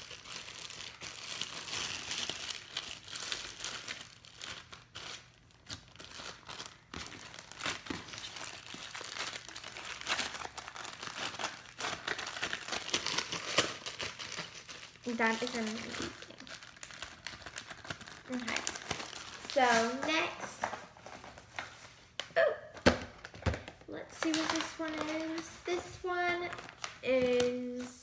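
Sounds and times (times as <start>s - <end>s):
slime crackling and popping: 0.0s - 20.4s.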